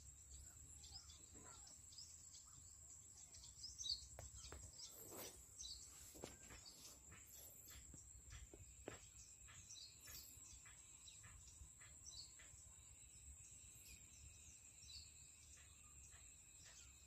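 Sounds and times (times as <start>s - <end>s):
bird chirps: 0.0s - 17.0s
soft knocks and rustles: 4.2s - 7.2s.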